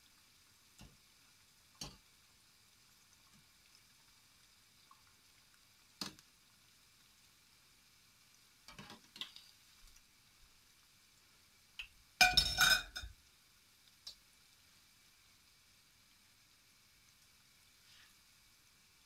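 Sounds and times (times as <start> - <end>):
oil sizzling: 0.0 - 19.0
metal skimmer clinking on dishes: 12.2 - 13.1.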